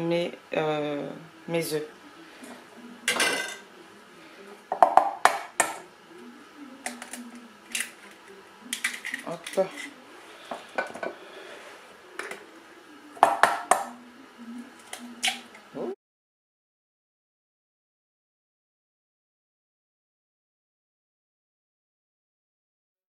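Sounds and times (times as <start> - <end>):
eggs cracking on metal bowl: 6.8 - 11.2.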